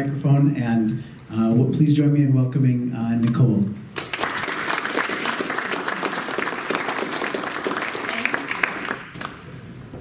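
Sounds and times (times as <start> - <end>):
small audience applauding: 4.0 - 9.5.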